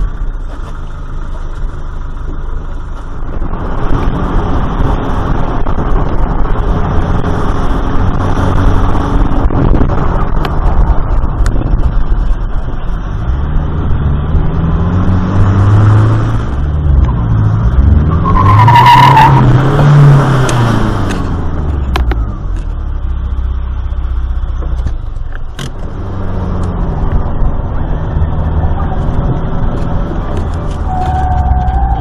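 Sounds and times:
car engine revving: 0.0 - 32.0
tyres squealing: 30.6 - 32.0.

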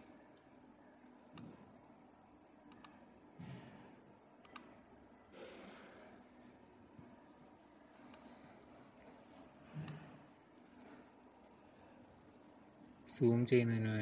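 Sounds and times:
computer mouse clicks: 2.7 - 3.0, 4.4 - 4.8, 7.9 - 8.6, 9.8 - 10.2.

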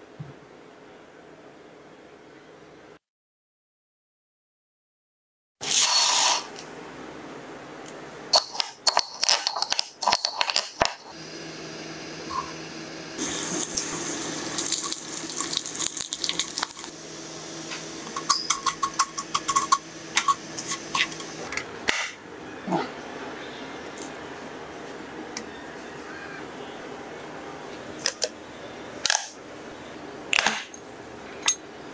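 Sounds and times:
rice sizzling in oil: 11.5 - 18.3.

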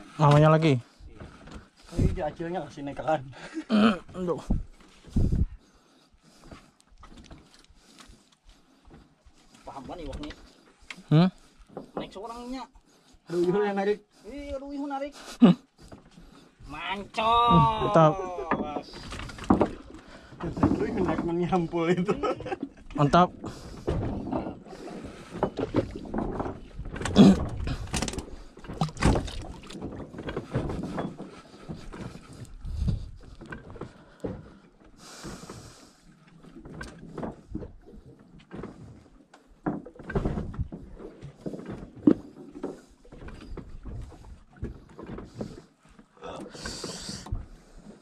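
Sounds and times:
knocks and thumps on wooden boat: 0.2 - 3.2, 4.0 - 5.6, 11.4 - 12.5, 15.8 - 48.0.

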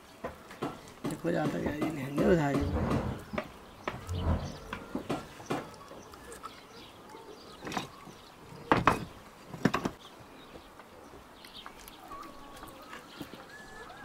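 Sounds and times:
short knocks: 0.6 - 5.7.

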